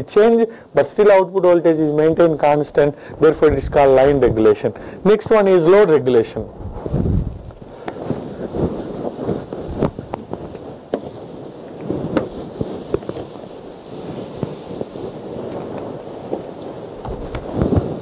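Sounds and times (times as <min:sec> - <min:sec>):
eraser wiping whiteboard: 0:07.8 - 0:15.6.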